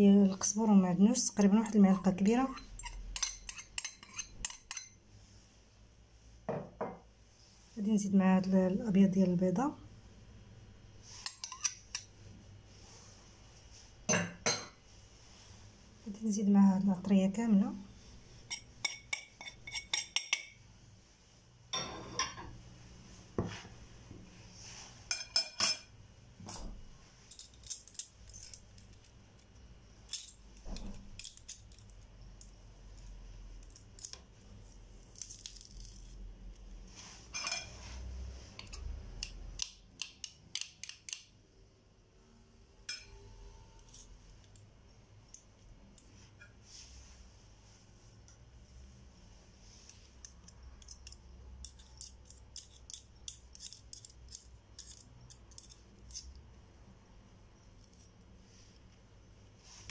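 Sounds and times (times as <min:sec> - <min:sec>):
kitchenware clinking on ceramic dish: 0:02.5 - 0:05.0, 0:14.1 - 0:14.8, 0:21.7 - 0:22.5, 0:25.1 - 0:25.9, 0:42.9 - 0:43.2.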